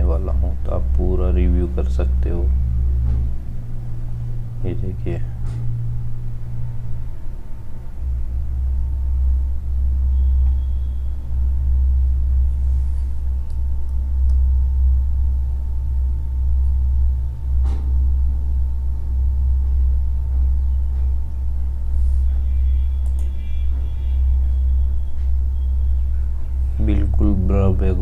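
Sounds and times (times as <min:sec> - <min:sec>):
faint steady whine: 0:00.0 - 0:28.0
low background rumble: 0:00.0 - 0:28.0
click: 0:10.4 - 0:10.6, 0:13.4 - 0:14.4, 0:23.0 - 0:23.3.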